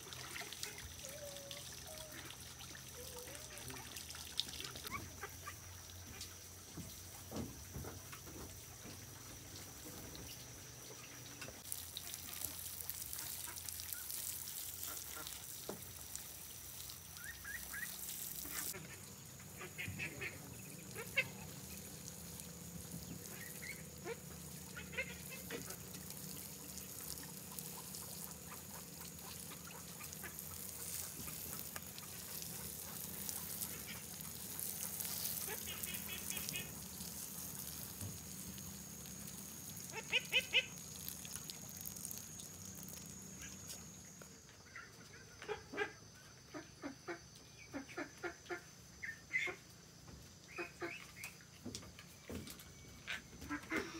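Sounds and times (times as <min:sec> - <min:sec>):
water sprinkling onto soil: 0:00.0 - 0:44.8
ducks quacking: 0:04.6 - 0:06.2, 0:17.3 - 0:21.8, 0:23.0 - 0:25.9, 0:35.2 - 0:36.8, 0:39.9 - 0:40.8, 0:44.7 - 0:49.6.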